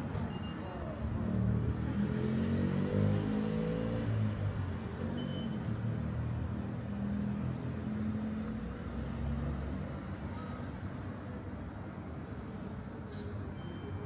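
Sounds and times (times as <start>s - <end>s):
short high beep: 13.6s - 14.0s.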